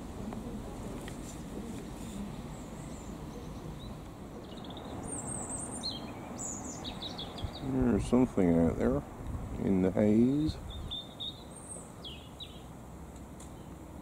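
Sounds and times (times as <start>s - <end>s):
small bird chirping: 2.5s - 7.8s, 10.5s - 12.7s.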